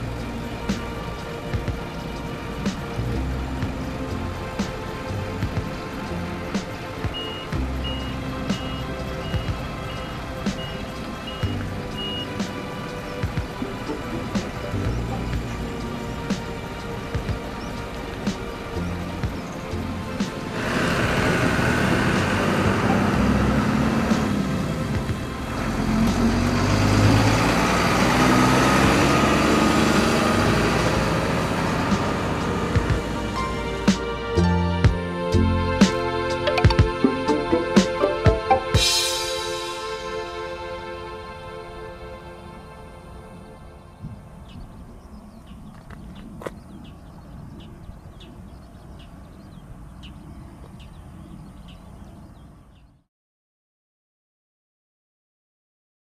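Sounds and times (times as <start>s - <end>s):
bird chirping: 0.0s - 20.9s, 43.8s - 53.1s
vehicles driving past: 0.0s - 52.6s
low seaside rumble: 0.0s - 52.7s.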